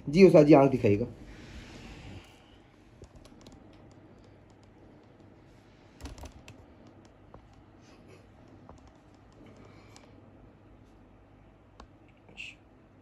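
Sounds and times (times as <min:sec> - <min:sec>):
low steady hum: 0:00.0 - 0:13.0
faint clicks: 0:03.0 - 0:05.4.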